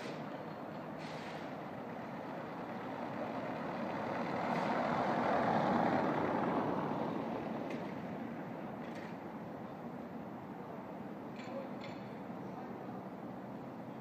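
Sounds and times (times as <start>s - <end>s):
car passing on cobblestones: 0.0s - 9.6s.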